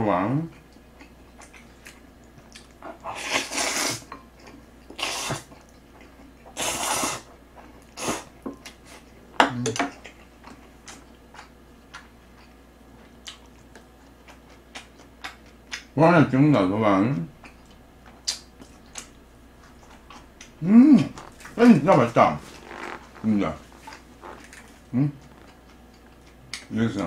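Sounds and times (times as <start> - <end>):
slurping noodles: 3.0 - 4.0, 5.0 - 5.5, 6.6 - 7.3, 22.4 - 24.7.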